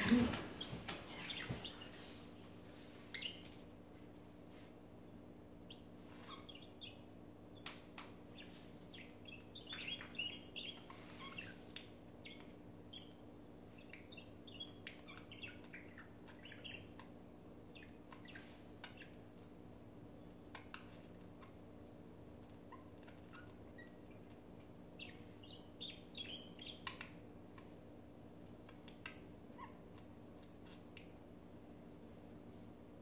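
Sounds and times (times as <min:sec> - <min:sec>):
budgerigars chirping: 0:03.1 - 0:03.6, 0:05.7 - 0:13.2, 0:13.8 - 0:19.2, 0:25.0 - 0:27.7.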